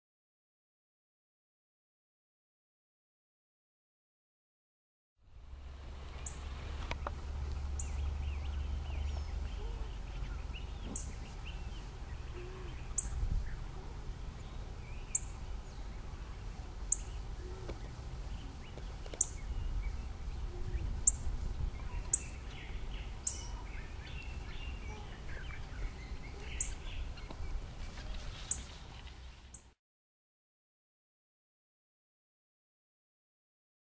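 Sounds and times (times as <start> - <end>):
low steady rumble: 5.2 - 29.5
faint bird calls: 6.2 - 15.4, 16.2 - 21.2
bird chirping high: 7.7 - 13.6, 14.4 - 15.9, 16.9 - 27.5.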